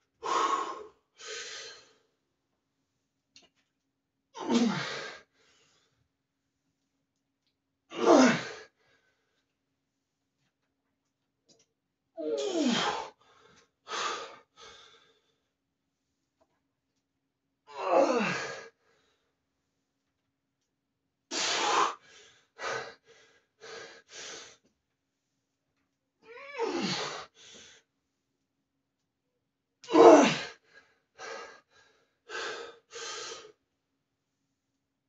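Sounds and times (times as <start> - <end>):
man straining groans: 4.4 - 5.0, 7.9 - 8.5, 12.2 - 13.1, 17.7 - 18.6, 26.4 - 27.2, 29.8 - 30.5.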